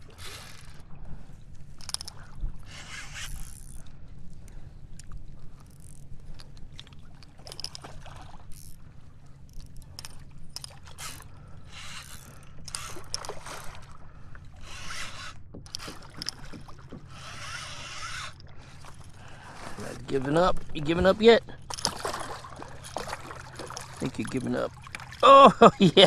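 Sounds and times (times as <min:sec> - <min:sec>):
steady low rumble: 0:00.0 - 0:26.0
fishing reel ratcheting: 0:00.1 - 0:00.9, 0:01.7 - 0:03.9, 0:05.0 - 0:07.9, 0:08.5 - 0:08.8, 0:09.4 - 0:13.7, 0:14.6 - 0:19.2, 0:21.6 - 0:23.2
fish splashing: 0:21.5 - 0:25.4.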